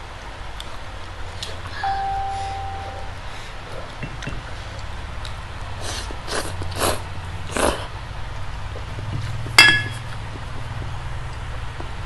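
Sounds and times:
person slurping noodles: 0:05.8 - 0:07.9.

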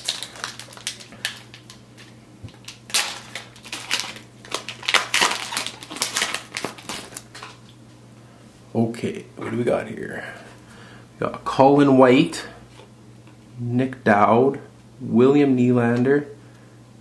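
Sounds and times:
foil wrapper crinkling and tearing: 0:00.0 - 0:07.7.

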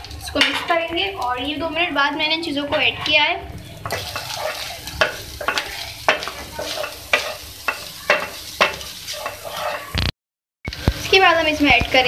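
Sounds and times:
sizzle of frying: 0:00.0 - 0:10.1, 0:10.7 - 0:12.0
spatula scraping metal pan: 0:03.9 - 0:10.0.

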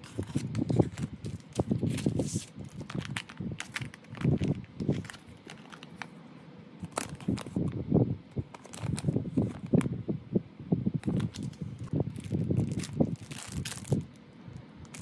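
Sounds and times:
plastic bag crinkling: 0:00.0 - 0:06.2, 0:06.8 - 0:07.7, 0:08.4 - 0:09.9, 0:11.0 - 0:14.2.

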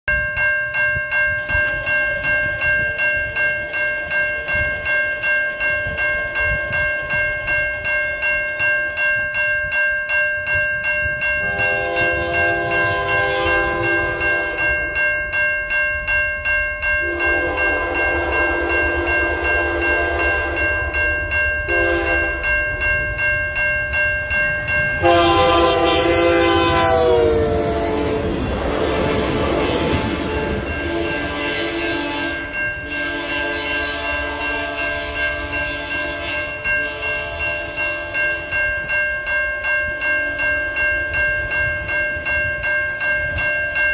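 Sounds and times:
crossing warning bell ringing: 0:00.0 - 0:43.9
passing locomotive and wheels rushing: 0:00.1 - 0:43.9
locomotive horn blasts: 0:11.4 - 0:14.7, 0:17.0 - 0:21.0, 0:21.7 - 0:22.4, 0:25.0 - 0:38.4.

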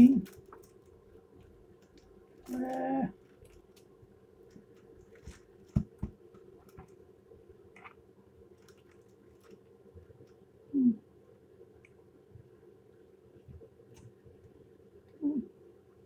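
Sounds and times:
steady low hum: 0:00.0 - 0:16.0
person humming mm: 0:10.7 - 0:11.1, 0:15.2 - 0:15.6.

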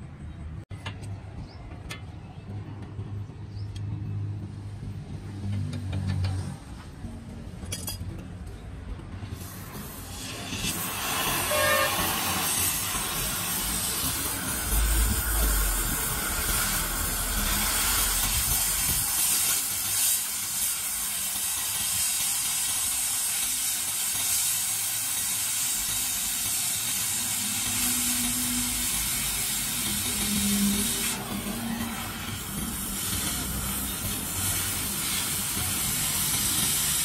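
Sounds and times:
cutting torch hissing: 0:09.3 - 0:37.0.

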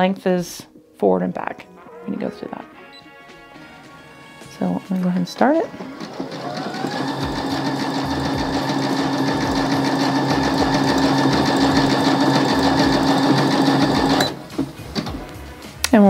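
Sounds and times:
sewing machine stitching: 0:05.6 - 0:15.2.

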